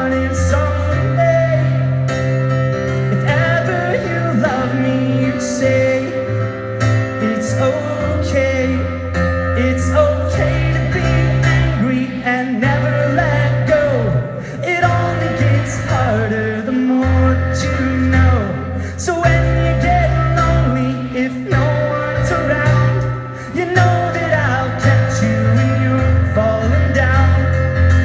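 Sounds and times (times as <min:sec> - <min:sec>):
held keyboard chords: 0:00.0 - 0:28.0.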